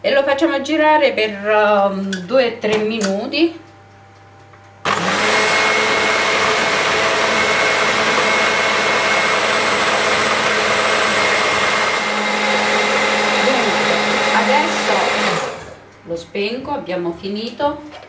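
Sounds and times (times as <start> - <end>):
stand mixer whisking batter: 4.9 - 15.8.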